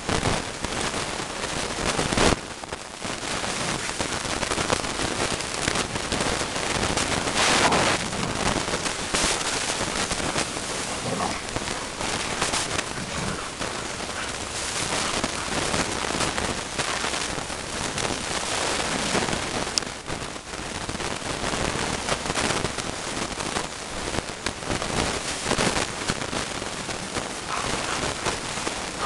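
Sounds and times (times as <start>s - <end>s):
steady hiss: 0.0s - 29.0s
dogs play-fighting scuffle: 3.2s - 5.4s, 6.1s - 19.5s, 24.7s - 29.0s.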